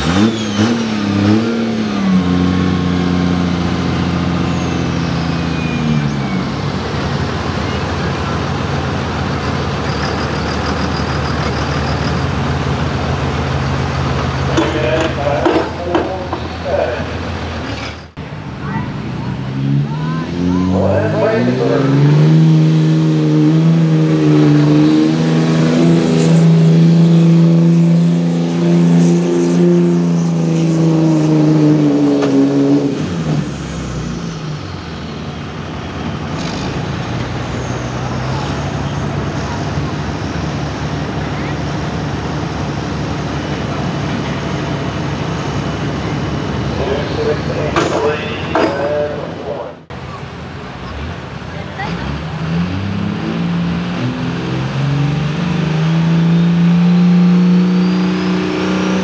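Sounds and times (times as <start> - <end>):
diesel engine idling: 1.3 - 22.2, 33.0 - 52.4.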